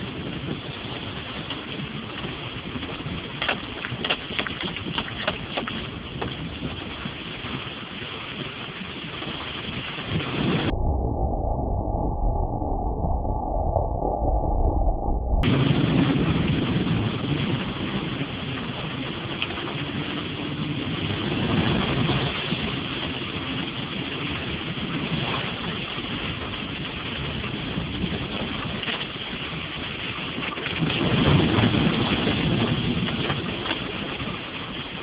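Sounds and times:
vehicle driving on wet ground: 15.5s - 26.6s.

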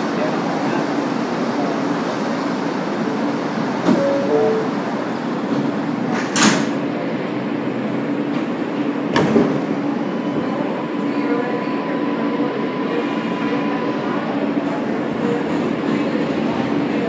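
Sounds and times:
subway car running hum: 0.0s - 17.0s
train clunk: 3.8s - 6.8s
two-note door chime: 4.0s - 4.8s.

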